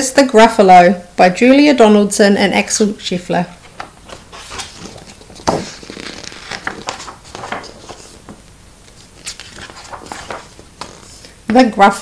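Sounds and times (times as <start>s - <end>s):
book pages turning: 3.6s - 11.4s.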